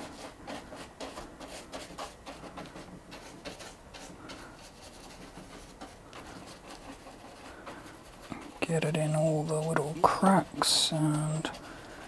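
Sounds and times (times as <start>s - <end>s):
paintbrush scrubbing glue: 0.0s - 12.0s.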